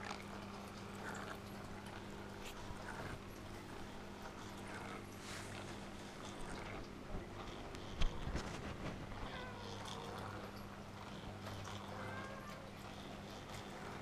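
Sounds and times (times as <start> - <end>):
steady electrical hum: 0.0 - 14.0
wavering animal cries: 11.6 - 12.8.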